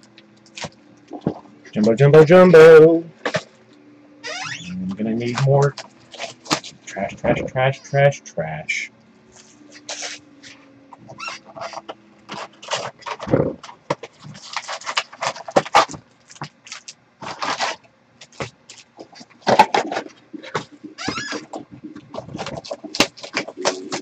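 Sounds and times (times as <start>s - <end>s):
foil wrappers crinkling: 5.3s - 6.8s, 9.3s - 19.4s, 20.4s - 24.0s
cardboard flaps rustling: 17.2s - 24.0s.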